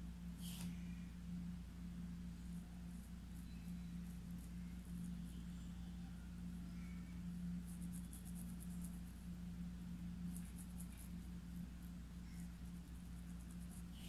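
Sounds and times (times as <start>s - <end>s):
steady low hum: 0.0s - 14.0s
paintbrush scratching on fabric: 7.6s - 9.3s, 10.3s - 14.0s.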